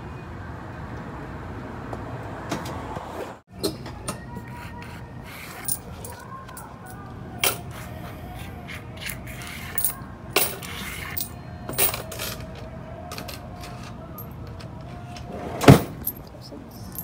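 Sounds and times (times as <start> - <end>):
coins clinking: 5.5 - 7.8, 9.1 - 14.7, 15.8 - 17.0.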